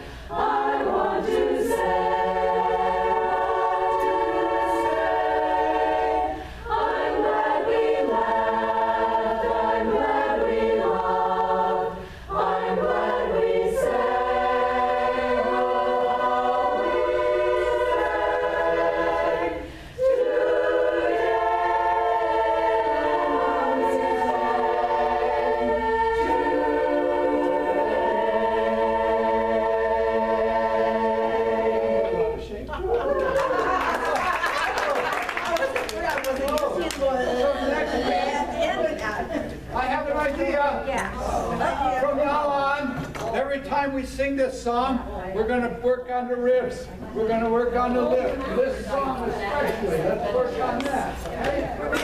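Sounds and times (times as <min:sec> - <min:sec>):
choir singing unaccompanied: 0:00.0 - 0:32.6.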